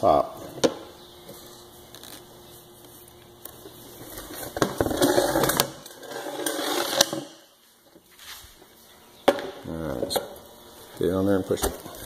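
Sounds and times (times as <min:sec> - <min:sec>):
plastic pipe scraping: 0:04.0 - 0:07.3.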